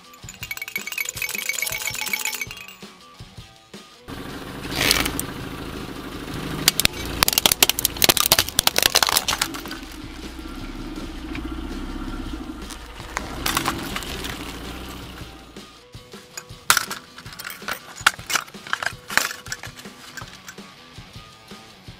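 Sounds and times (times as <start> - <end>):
car engine running low: 4.1 - 15.6
plastic toy cracking under tyre: 4.7 - 5.2, 6.6 - 10.2, 12.7 - 14.6.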